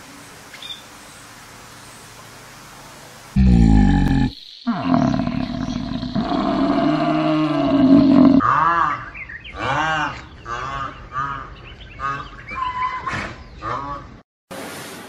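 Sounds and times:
animatronic dinosaur roaring: 0:03.4 - 0:09.0.

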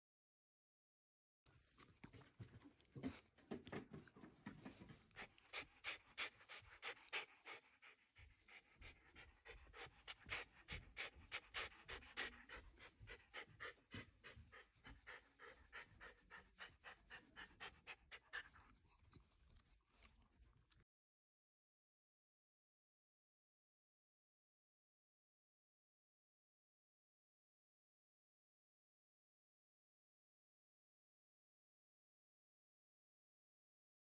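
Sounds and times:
dog panting: 0:01.7 - 0:20.2.

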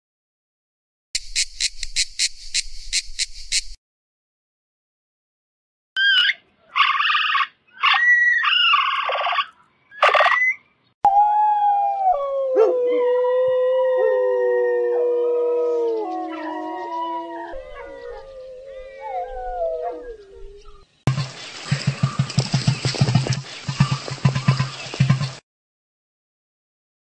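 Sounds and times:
high gliding animal calls: 0:06.0 - 0:11.6, 0:15.7 - 0:20.8.

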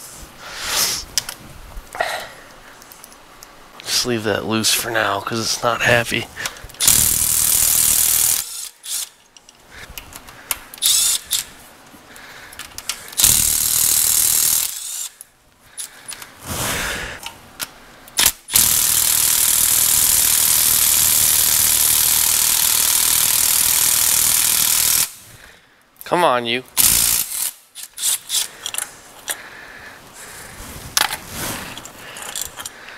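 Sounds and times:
cordless electric ratchet running: 0:06.8 - 0:09.1, 0:10.8 - 0:11.5, 0:13.2 - 0:15.1, 0:18.2 - 0:25.2, 0:26.8 - 0:28.5.

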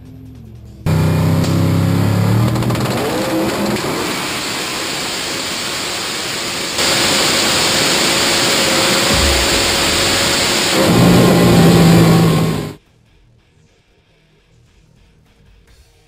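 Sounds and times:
racing engine at full throttle: 0:00.9 - 0:12.8.

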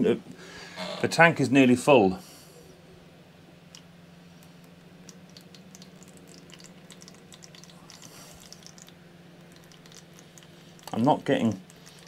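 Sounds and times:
water dripping into plastic tub: 0:04.6 - 0:12.0.

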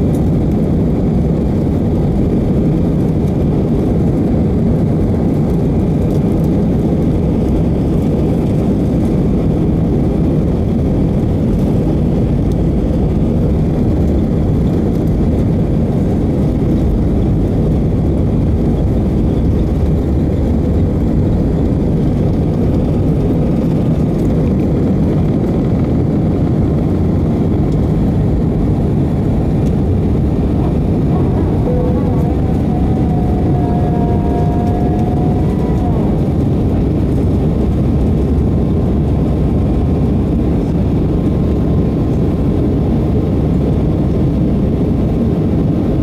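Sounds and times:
jet engines roaring: 0:00.0 - 0:46.0
faint whining tone: 0:29.2 - 0:38.1.

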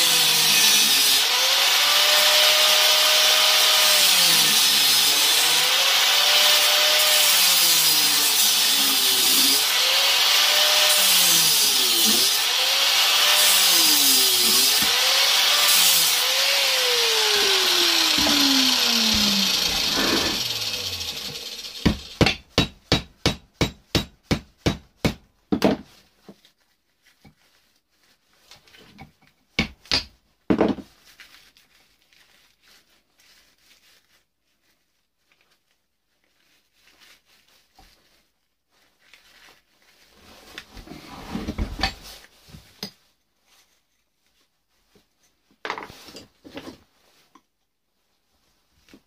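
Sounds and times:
whirring tool: 0:00.0 - 0:22.3.

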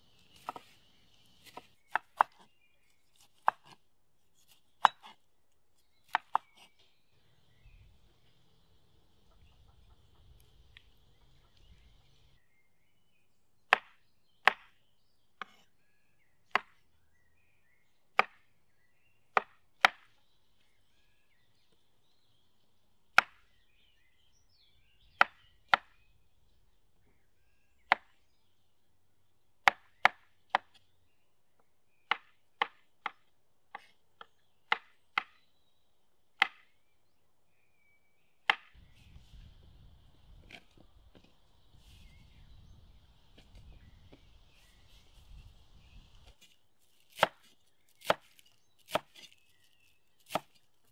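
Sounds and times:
knife striking wooden cutting board: 0:00.3 - 0:00.8, 0:01.4 - 0:02.5, 0:03.2 - 0:03.8, 0:04.8 - 0:05.2, 0:06.1 - 0:06.7, 0:50.3 - 0:50.6.

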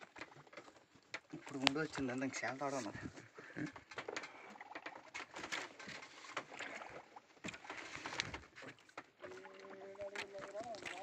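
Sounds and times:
water lapping against boat: 0:00.0 - 0:11.0.

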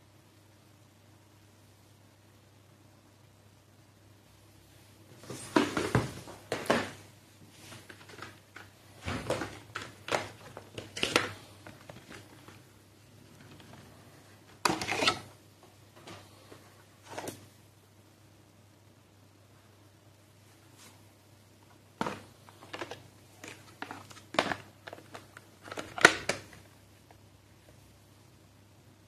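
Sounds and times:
cardboard and plastic rustling: 0:05.2 - 0:15.3, 0:22.0 - 0:26.8.

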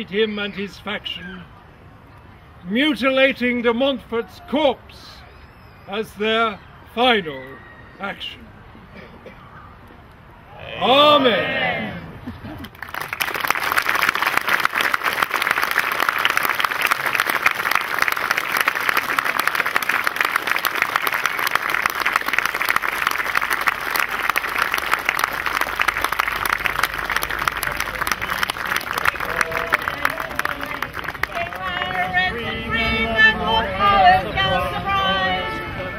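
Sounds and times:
audience applauding: 0:12.6 - 0:32.2.

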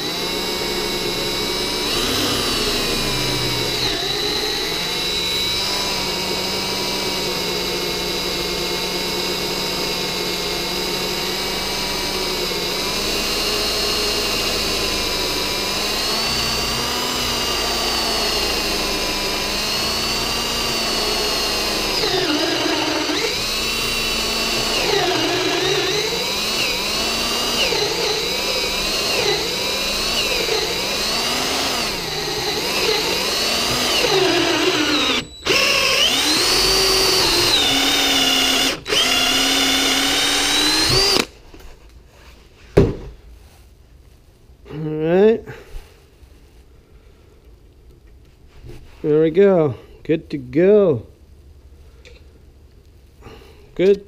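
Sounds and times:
cordless drill whining under load: 0:00.0 - 0:41.4.

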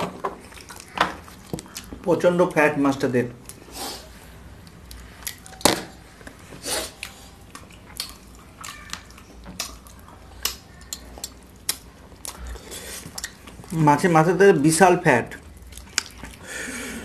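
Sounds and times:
lip smacks: 0:06.8 - 0:13.7, 0:15.6 - 0:16.5
wet squelches: 0:06.8 - 0:13.8, 0:15.4 - 0:16.8.

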